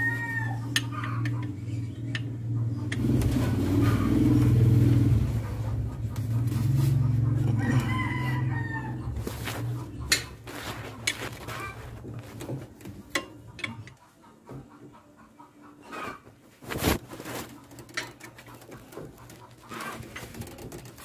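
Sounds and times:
rooster crowing: 0:00.0 - 0:01.2, 0:06.9 - 0:09.8
hand tools clicking and knocking: 0:00.6 - 0:03.3, 0:10.0 - 0:14.0, 0:17.4 - 0:21.0
low engine hum: 0:01.2 - 0:12.5.

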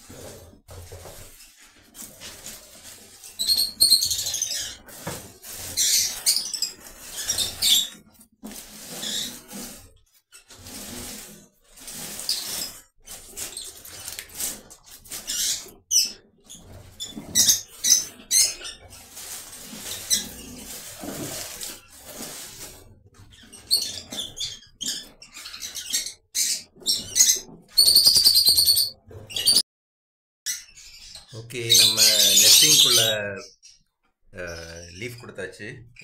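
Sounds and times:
palm fronds rustling and scraping: 0:00.0 - 0:25.7
bird chirps: 0:25.3 - 0:29.6.

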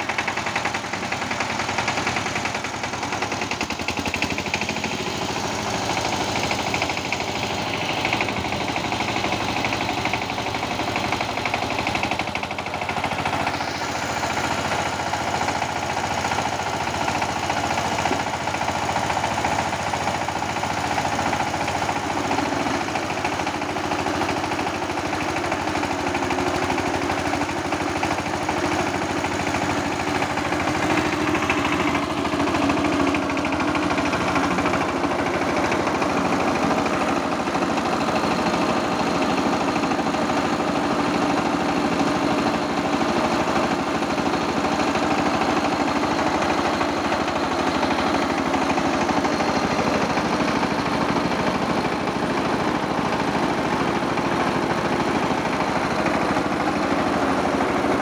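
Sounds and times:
diesel engine running: 0:00.0 - 0:58.0
rice huller milling grain: 0:00.0 - 0:58.0.

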